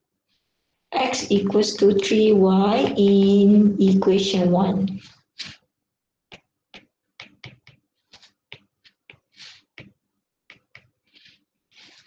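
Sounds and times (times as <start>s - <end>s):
stylus tapping on glass screen: 6.3s - 7.8s.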